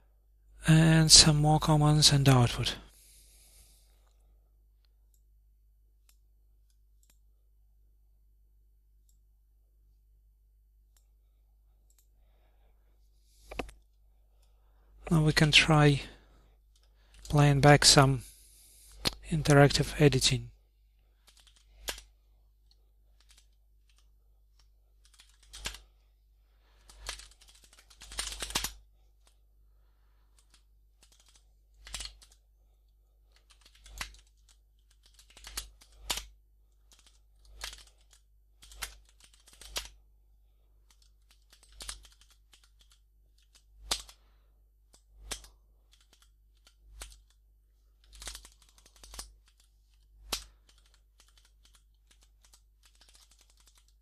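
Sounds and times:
computer keyboard keystrokes: 0:13.5 - 0:13.8, 0:21.2 - 0:22.0, 0:25.0 - 0:25.8, 0:26.9 - 0:28.8, 0:30.4 - 0:32.4, 0:33.4 - 0:36.3, 0:36.9 - 0:40.0, 0:40.9 - 0:44.2, 0:44.9 - 0:47.4, 0:48.0 - 0:54.0.

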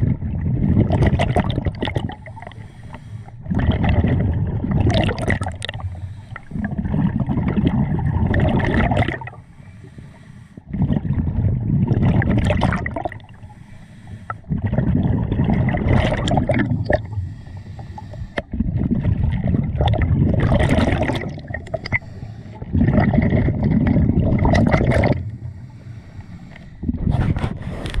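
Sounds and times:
exhaled bubbles rushing: 0:00.0 - 0:02.6, 0:03.3 - 0:09.4, 0:10.7 - 0:13.5, 0:14.4 - 0:17.4, 0:18.4 - 0:25.6
regulator inhalations: 0:02.2 - 0:03.4, 0:05.8 - 0:06.6, 0:09.3 - 0:10.7, 0:13.4 - 0:14.5, 0:17.1 - 0:18.5, 0:21.9 - 0:22.6, 0:25.4 - 0:26.8.

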